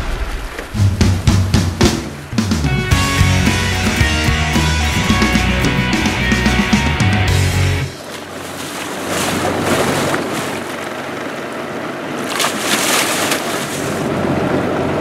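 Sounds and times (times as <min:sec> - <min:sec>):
water splashing against boat: 0:07.9 - 0:15.0
fish thrashing at hull: 0:08.0 - 0:11.4, 0:12.2 - 0:14.0.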